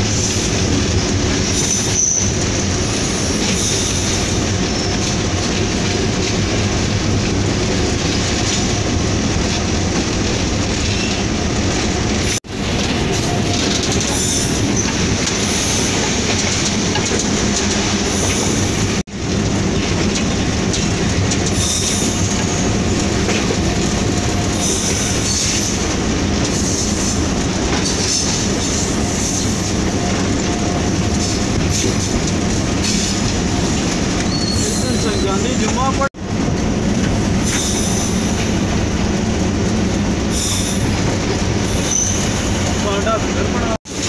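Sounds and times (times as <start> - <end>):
wheels rumbling on rails: 0.0 - 44.0.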